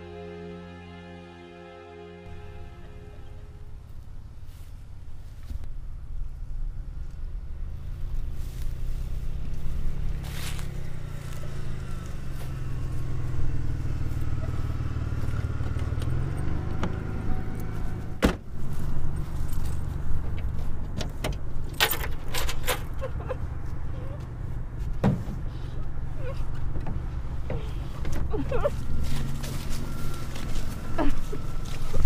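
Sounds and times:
car engine rumbling: 2.3 - 32.0
car driving over grass: 3.8 - 23.0, 26.5 - 32.0.

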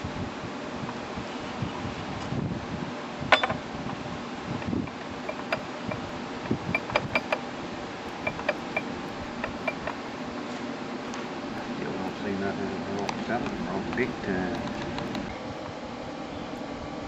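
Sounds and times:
sharp metal knock: 3.3 - 3.6
metal gears clicking: 4.9 - 6.1, 6.7 - 7.4, 8.1 - 10.0.

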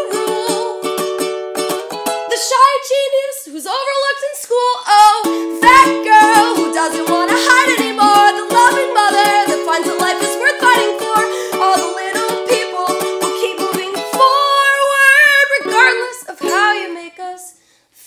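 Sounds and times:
ukulele strumming: 0.0 - 17.5
woman singing long notes: 5.2 - 17.5.

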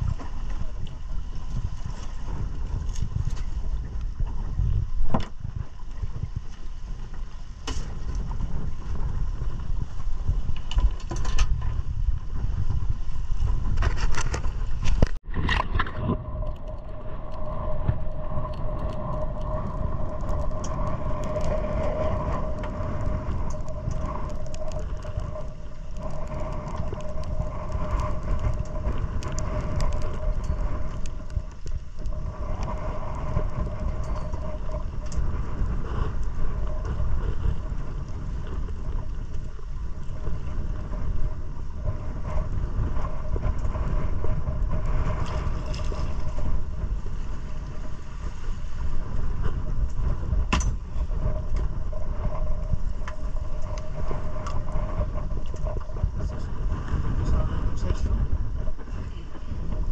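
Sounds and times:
wind noise on microphone: 0.0 - 59.9
knocks and scrapes: 13.4 - 16.8.

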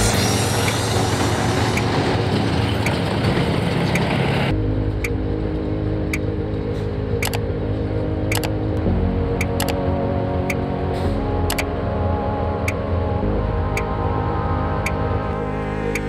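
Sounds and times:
tank diesel engines running: 0.0 - 8.8.

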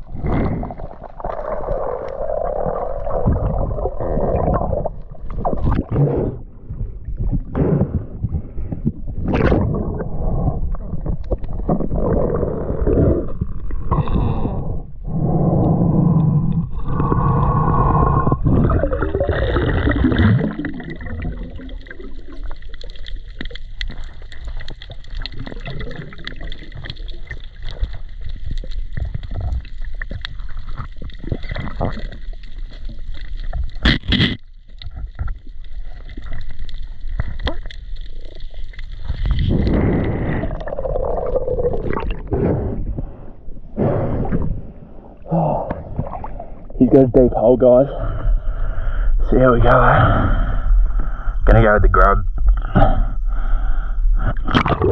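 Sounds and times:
muffled underwater rushing and gurgling: 0.0 - 54.9
faint crackling clicks: 21.1 - 40.8.

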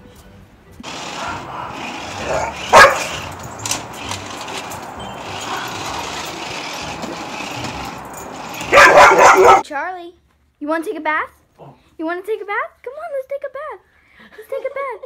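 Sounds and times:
dog barking: 1.1 - 3.2, 8.6 - 9.6.

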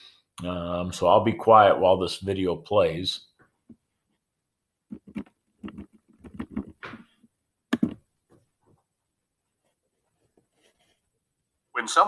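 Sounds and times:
soft knocks and clicks: 4.9 - 8.8.

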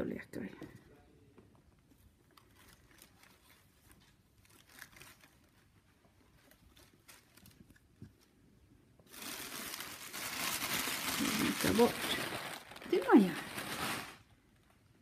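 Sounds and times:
tissue paper crinkling: 2.2 - 8.0, 9.0 - 14.8.

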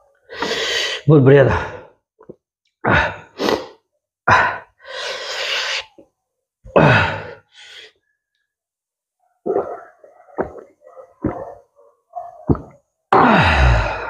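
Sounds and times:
man sighing and exhaling: 13.1 - 14.0.

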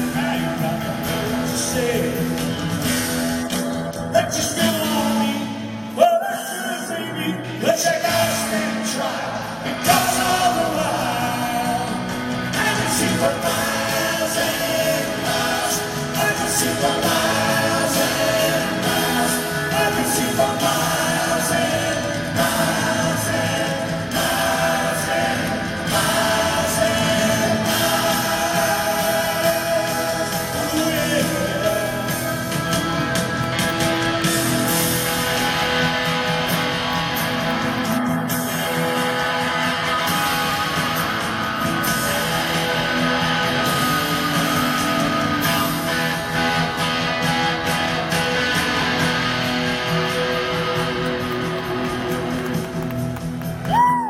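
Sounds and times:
bass guitar: 0.0 - 54.0
drums: 0.0 - 54.0
electric guitars: 0.0 - 54.0.

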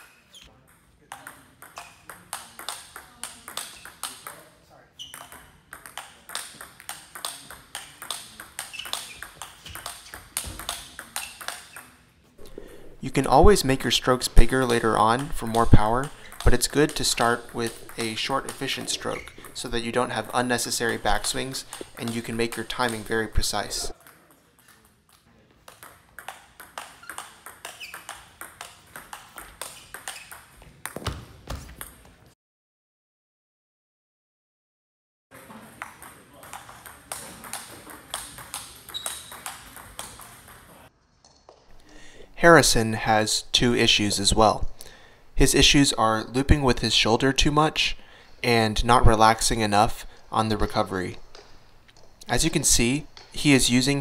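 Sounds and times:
table tennis ball hits: 0.0 - 32.1, 35.4 - 40.8, 50.5 - 52.1.

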